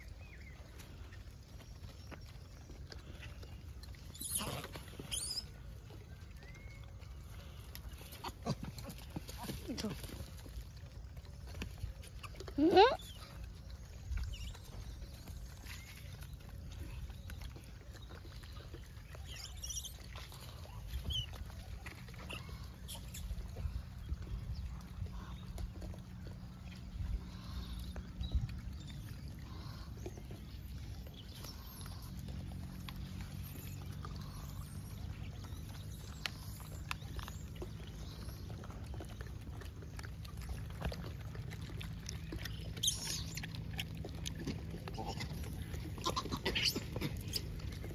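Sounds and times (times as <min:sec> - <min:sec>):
monkeys scuffling and rustling: 0:04.0 - 0:05.8, 0:07.6 - 0:13.5
steady low hum: 0:20.1 - 0:47.9
steady low rumble: 0:20.4 - 0:47.9.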